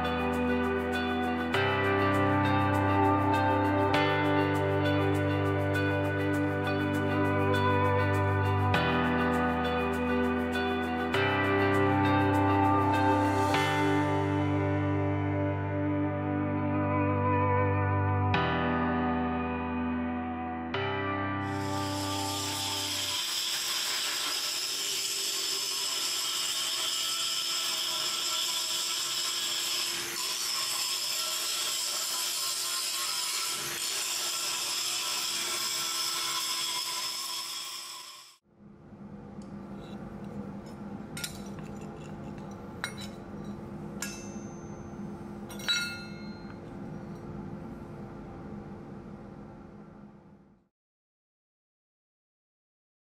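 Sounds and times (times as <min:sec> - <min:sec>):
angle grinder grinding steel: 0:21.5 - 0:38.4.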